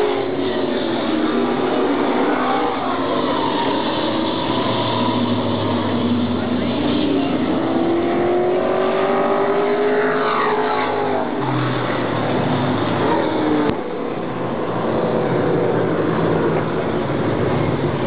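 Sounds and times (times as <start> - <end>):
race car passing by: 0.0 - 13.7
race car engines: 0.0 - 18.0.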